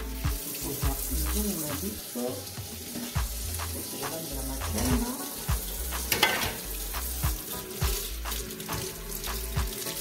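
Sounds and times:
background music with beat and bass: 0:00.0 - 0:02.0, 0:03.2 - 0:10.0
plantains sizzling on a grill: 0:00.0 - 0:10.0.

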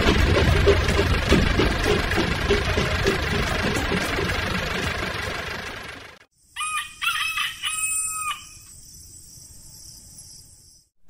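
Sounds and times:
rumbling noise: 0:00.0 - 0:06.2
rooster crowing: 0:06.6 - 0:08.6.

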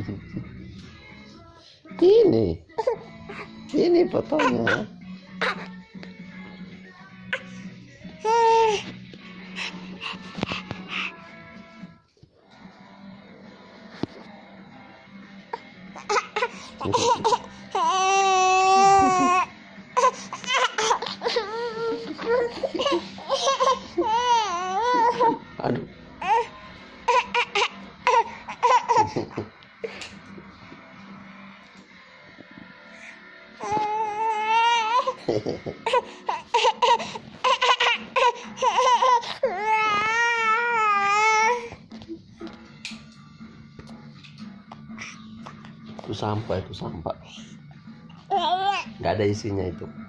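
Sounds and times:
baby wailing and vocalizing: 0:08.2 - 0:08.9, 0:16.0 - 0:25.4, 0:26.2 - 0:29.2, 0:33.6 - 0:35.2, 0:35.8 - 0:41.8, 0:48.2 - 0:49.0.

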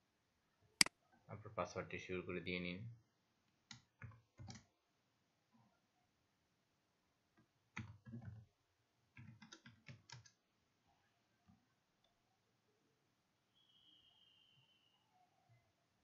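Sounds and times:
faint keyboard keystrokes: 0:03.7 - 0:04.7.

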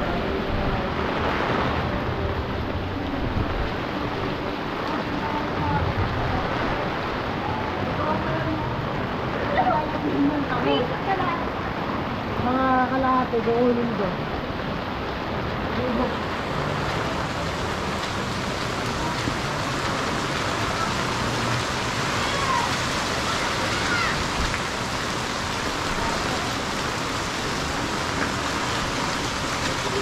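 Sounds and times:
rain on a wet street: 0:00.0 - 0:30.0.

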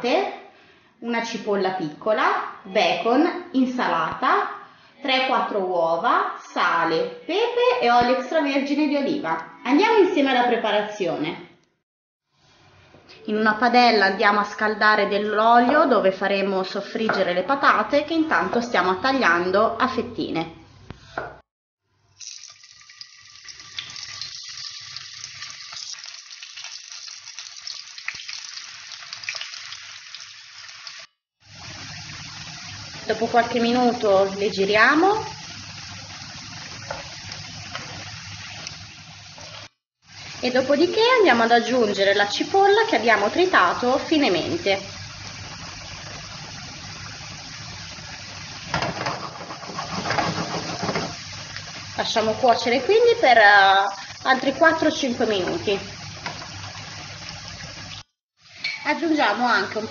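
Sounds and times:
potatoes sizzling in oil: 0:22.2 - 0:59.9.

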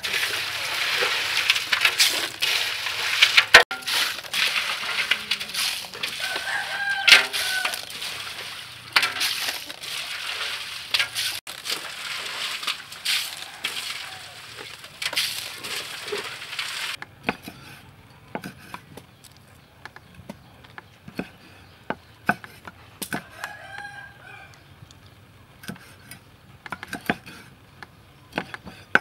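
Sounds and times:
ice and fish rattling: 0:00.0 - 0:17.0.

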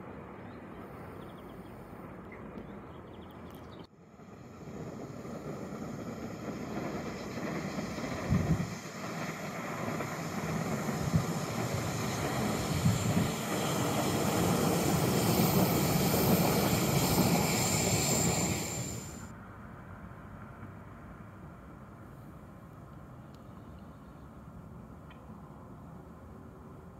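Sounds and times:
train rolling rumble: 0:03.9 - 0:19.3
thin high whine: 0:04.2 - 0:19.3.

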